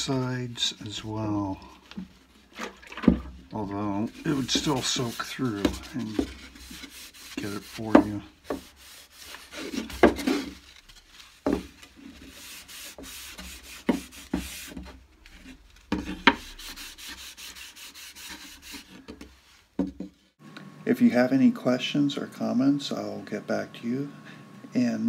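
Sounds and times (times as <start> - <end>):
cloth rag rubbing wood: 0.0 - 19.8.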